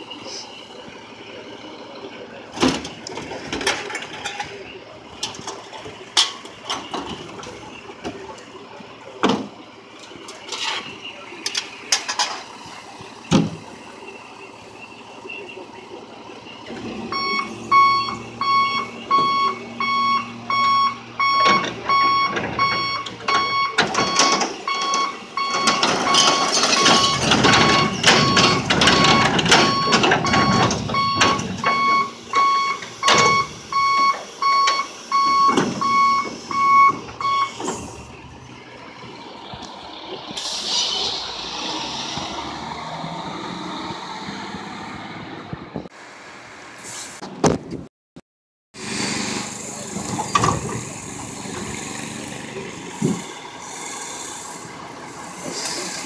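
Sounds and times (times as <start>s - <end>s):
hopper dumping load clattering: 0.3s - 14.2s, 15.8s - 45.8s, 48.8s - 56.0s
truck warning beeper: 12.5s - 38.6s.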